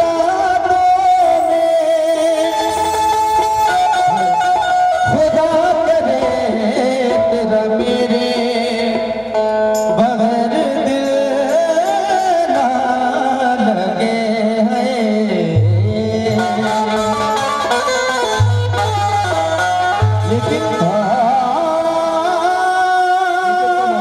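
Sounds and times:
person singing: 0.0s - 3.0s, 3.8s - 17.5s, 20.2s - 24.0s
harmonium melody: 0.0s - 24.0s.

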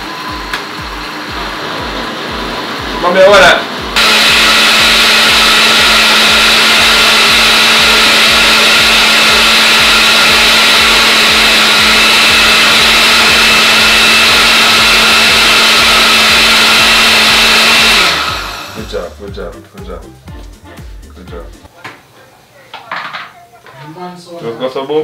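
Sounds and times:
blender whirring: 0.0s - 19.2s.

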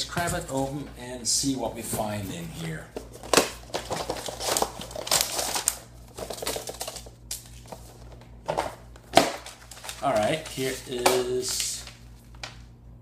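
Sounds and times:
cardboard box rustling and crinkling: 2.6s - 7.1s, 9.4s - 11.6s.

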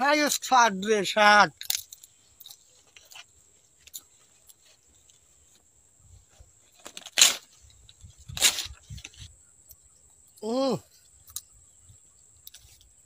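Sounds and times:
leaves being torn: 6.8s - 7.7s, 8.3s - 9.2s.

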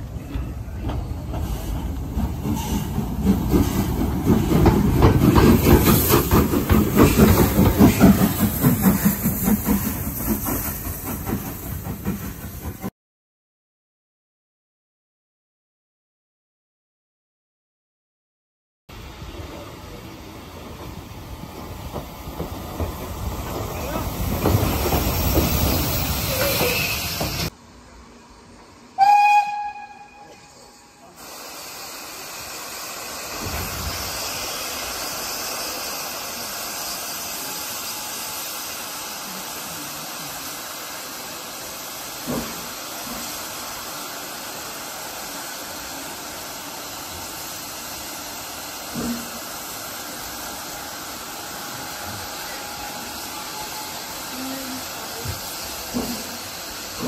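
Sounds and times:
train running noise: 0.0s - 12.9s, 18.9s - 57.0s
steam hissing loudly: 1.0s - 12.9s, 19.0s - 27.6s, 29.0s - 57.0s
steam whistle blast: 29.0s - 31.1s.

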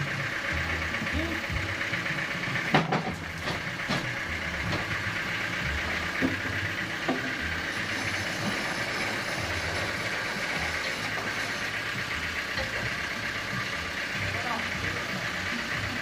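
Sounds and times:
sawmill machinery humming: 0.0s - 16.0s
log knocking on saw carriage: 2.7s - 5.1s, 6.0s - 9.2s.

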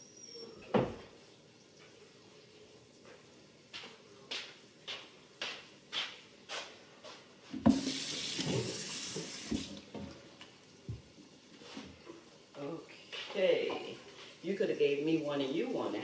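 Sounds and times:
footsteps on kitchen floor: 3.0s - 12.1s, 13.0s - 14.4s
tap water running: 7.5s - 16.0s.

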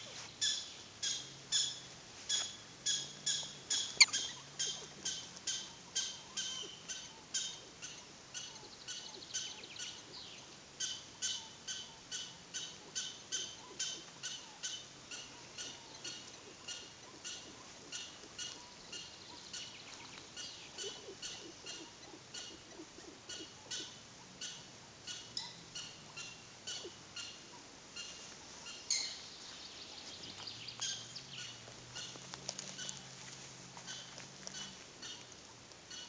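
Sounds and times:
animal chirping: 0.4s - 10.0s, 20.4s - 28.1s.

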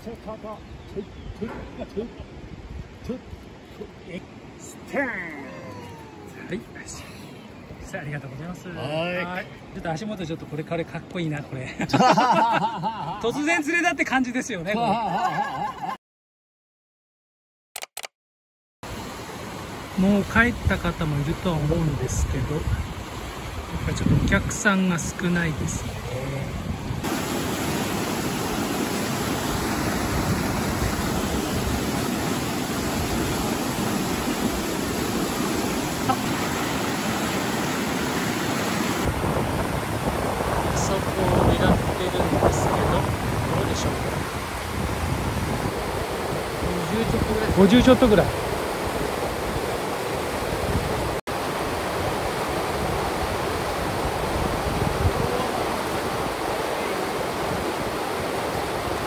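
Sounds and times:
river rushing over rapids: 18.9s - 59.0s.

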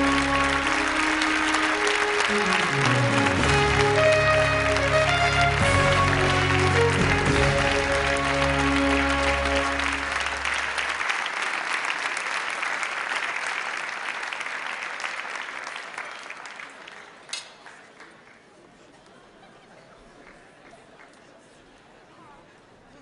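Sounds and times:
orchestral music: 0.0s - 10.9s
audience applauding: 0.0s - 19.2s.

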